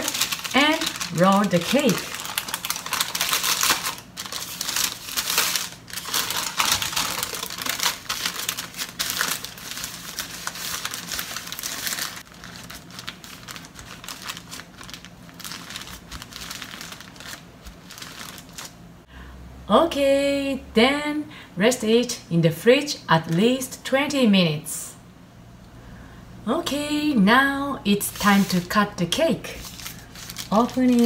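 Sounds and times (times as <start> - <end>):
baking paper crinkling: 0.0 - 18.8, 28.0 - 31.0.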